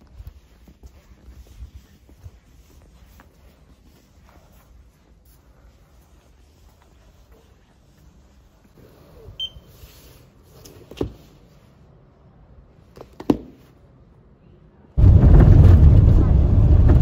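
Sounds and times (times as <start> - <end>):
short electronic beep: 9.4 - 9.7.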